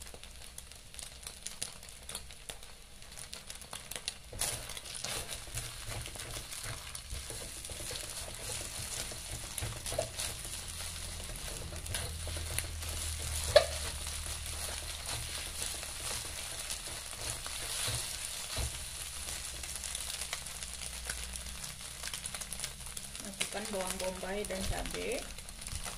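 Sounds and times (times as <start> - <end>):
egg sizzling in hot oil: 0.0 - 25.9
spatula scraping a pan: 3.3 - 21.6.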